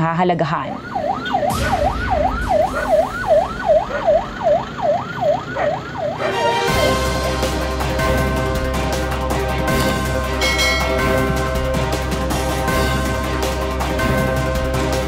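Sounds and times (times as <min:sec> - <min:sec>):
electronic siren yelping: 0:00.5 - 0:07.1
music: 0:06.2 - 0:15.0.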